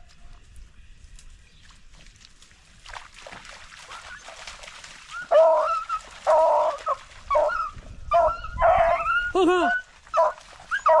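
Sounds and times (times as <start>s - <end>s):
hounds baying: 5.2s - 11.0s.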